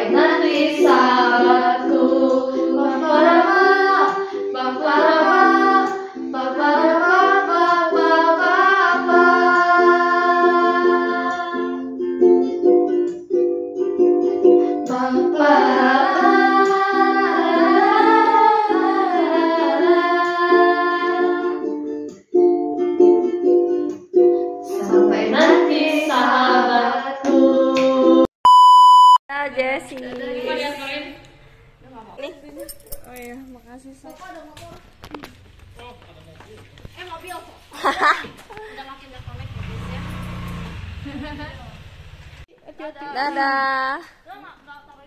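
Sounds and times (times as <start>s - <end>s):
women singing wordless syllables: 0.0s - 11.7s, 14.9s - 21.5s, 24.7s - 28.3s, 29.4s - 31.5s
strummed ukulele: 0.0s - 28.2s.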